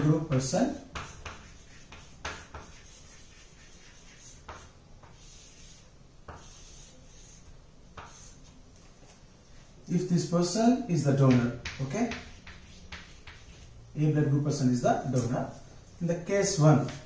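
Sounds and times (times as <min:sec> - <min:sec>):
chalk tapping on board: 0:00.2 - 0:08.5, 0:11.2 - 0:13.7
chalk scratching on chalkboard: 0:00.2 - 0:08.6, 0:11.3 - 0:13.8, 0:15.0 - 0:15.7.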